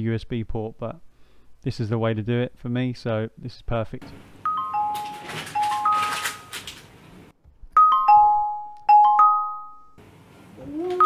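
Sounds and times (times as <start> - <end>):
mallet instrument music: 7.8 - 10.0.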